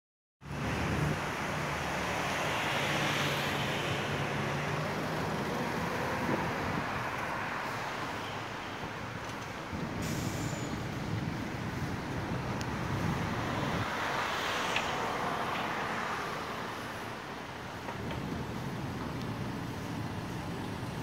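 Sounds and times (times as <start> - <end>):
road traffic rumble: 0.4 - 21.0
vehicle passing: 0.5 - 7.8.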